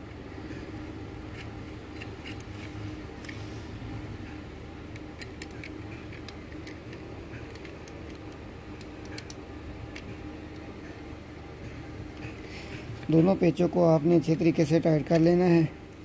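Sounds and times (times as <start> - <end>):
steady low hum: 0.0 - 16.0
small parts clicking: 4.9 - 10.7.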